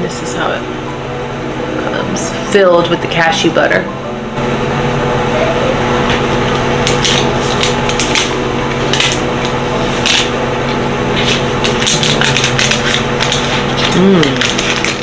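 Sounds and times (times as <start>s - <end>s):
held low tones: 0.0s - 15.0s
foil wrapper crinkling: 11.2s - 15.0s.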